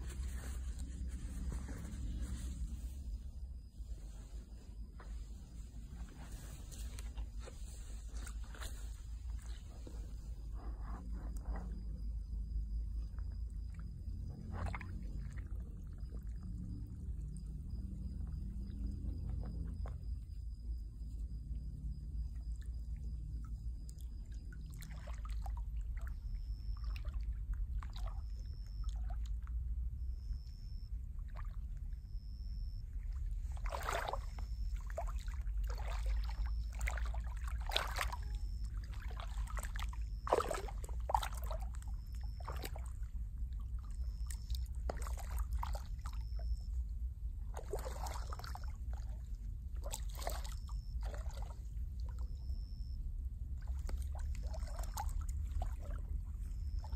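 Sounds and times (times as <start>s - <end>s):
footsteps squelching through muddy water: 0.0s - 11.6s, 14.1s - 16.3s, 30.2s - 46.8s, 47.5s - 56.9s
steady low rumble: 0.0s - 56.9s.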